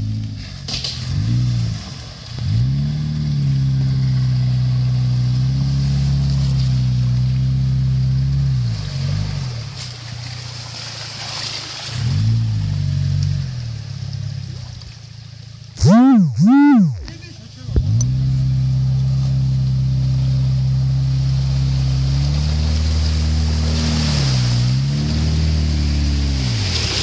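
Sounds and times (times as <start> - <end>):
muddy water splashing: 0.0 - 15.8, 17.0 - 27.0
car engine revving: 0.0 - 27.0.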